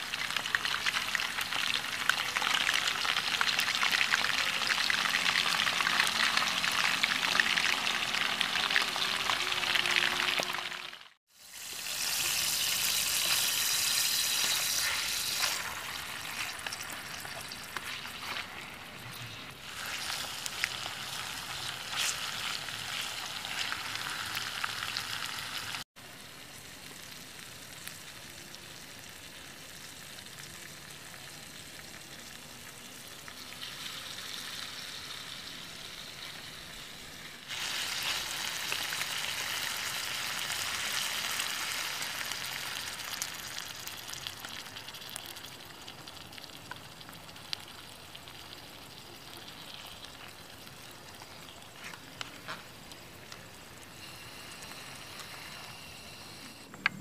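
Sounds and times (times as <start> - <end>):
food sizzling in a pan: 0.0 - 56.6
stirring: 12.1 - 24.0.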